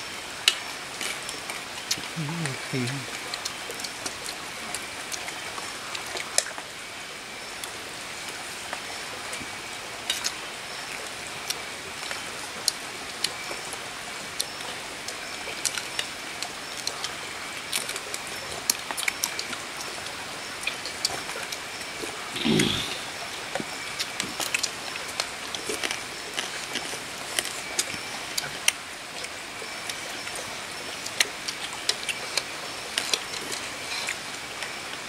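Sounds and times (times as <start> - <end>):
steady hiss like running water: 0.0 - 35.0
insect trill: 0.6 - 3.1, 20.3 - 28.4.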